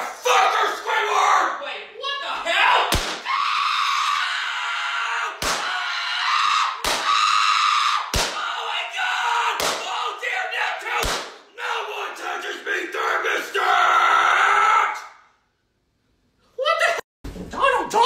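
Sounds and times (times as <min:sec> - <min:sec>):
sharp bangs: 0:02.9 - 0:03.3, 0:11.0 - 0:11.4.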